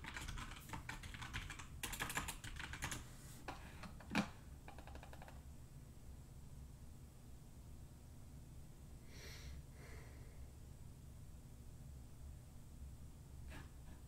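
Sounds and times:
typing on computer keyboard: 0.0 - 3.0, 3.8 - 5.4.

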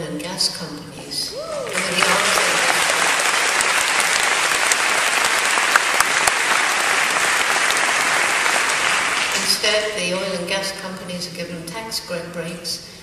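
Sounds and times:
audience applauding: 1.4 - 9.8.

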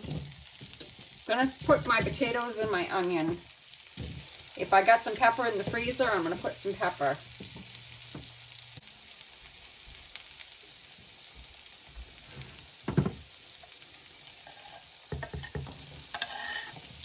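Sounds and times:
potatoes sizzling in oil: 0.0 - 17.0
knock on frying pan: 12.8 - 13.2, 15.1 - 15.8
onion scraped off cutting board: 16.1 - 17.0.

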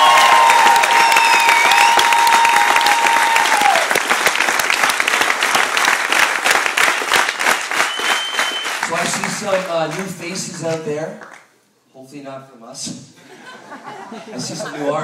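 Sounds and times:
long whoop: 0.0 - 4.0
audience applauding: 0.0 - 10.6.

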